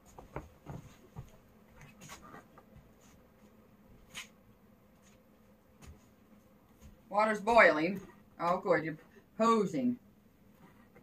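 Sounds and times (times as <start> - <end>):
slipper footsteps on linoleum: 0.0 - 4.3, 5.0 - 8.1.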